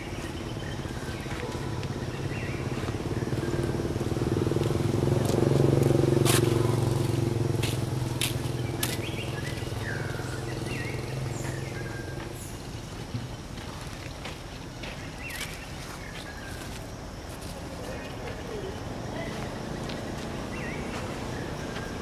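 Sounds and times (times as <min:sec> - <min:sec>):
vehicle engine passing by: 0:01.3 - 0:12.4.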